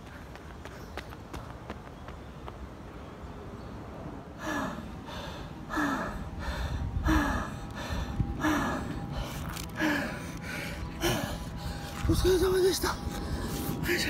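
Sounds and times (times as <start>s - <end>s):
runner gasping for breath: 4.4s - 12.0s.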